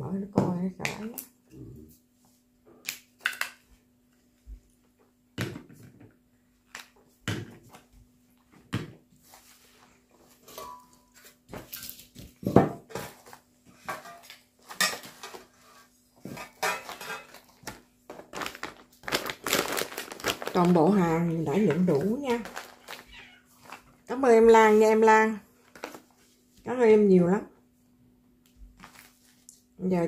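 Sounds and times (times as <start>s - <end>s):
plastic bag rustling: 14.3s - 26.5s, 28.7s - 29.5s
metal jars clinking: 16.4s - 17.4s.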